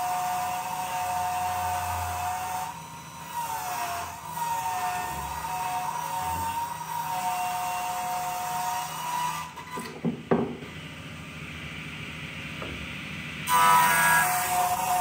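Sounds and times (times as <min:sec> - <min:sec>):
table saw whine: 0:00.0 - 0:15.0
wooden knocks: 0:09.9 - 0:10.6.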